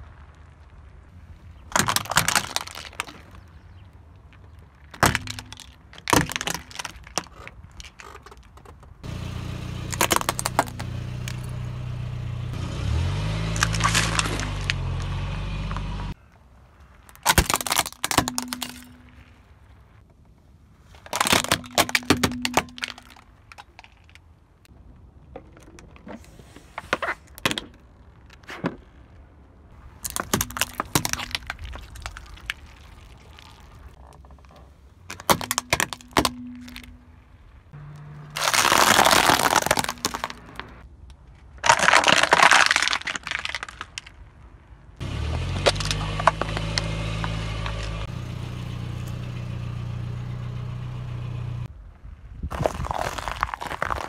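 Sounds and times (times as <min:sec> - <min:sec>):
plastic cracking under car tyre: 0:01.5 - 0:09.0, 0:09.9 - 0:11.5, 0:13.6 - 0:15.2, 0:16.9 - 0:19.3, 0:20.9 - 0:26.1, 0:29.8 - 0:37.0, 0:37.8 - 0:44.5, 0:45.3 - 0:48.0, 0:52.5 - 0:54.0
car engine running: 0:09.0 - 0:16.2, 0:45.0 - 0:51.7.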